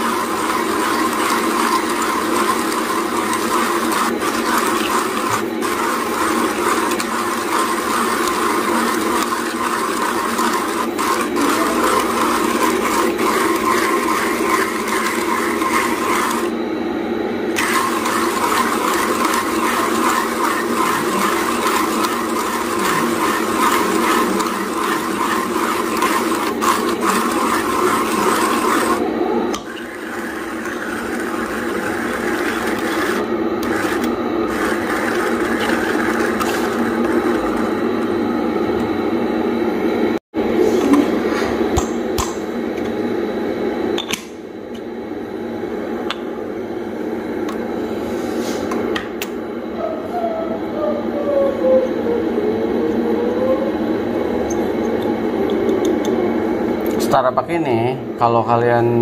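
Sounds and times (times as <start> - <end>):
coffee grinder grinding beans: 0.0 - 16.6, 17.5 - 38.9.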